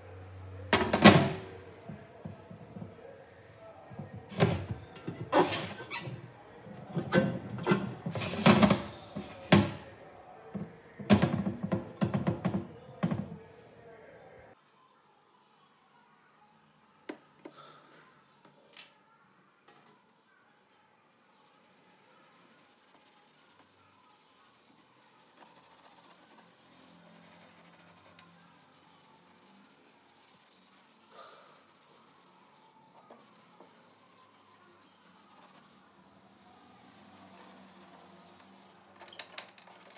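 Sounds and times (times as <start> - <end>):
sponge rubbing on metal panel: 4.0 - 9.9, 21.6 - 35.8.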